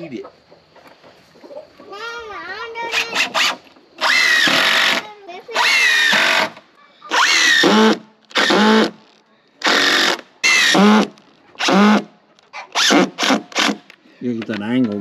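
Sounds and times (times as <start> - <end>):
cordless drill driving screws: 2.9 - 9.0, 9.6 - 13.9.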